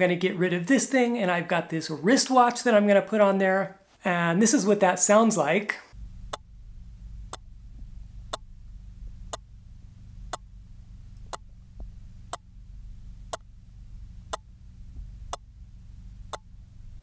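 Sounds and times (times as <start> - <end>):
low hum from watch: 5.9 - 17.0.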